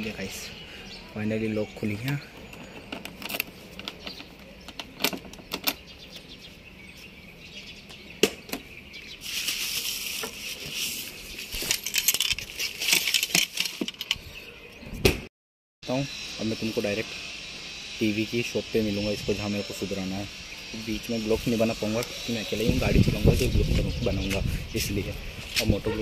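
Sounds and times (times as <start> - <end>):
clicks and knocks of handling: 2.0 - 6.3
bubble wrap crinkling: 9.2 - 13.5.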